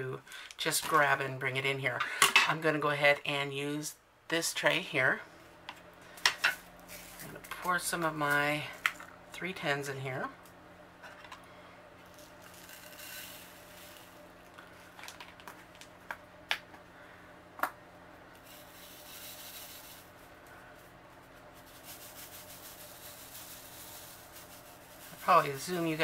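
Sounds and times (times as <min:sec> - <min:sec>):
beads rattling in plastic tray: 0:12.2 - 0:14.2, 0:18.4 - 0:20.1, 0:21.6 - 0:26.0.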